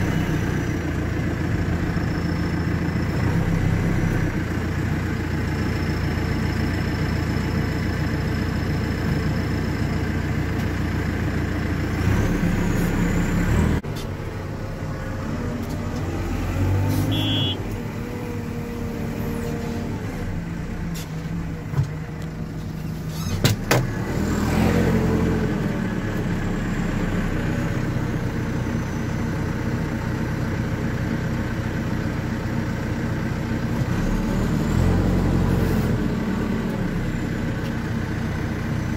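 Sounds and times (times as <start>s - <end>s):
diesel engine running: 0.0s - 38.9s.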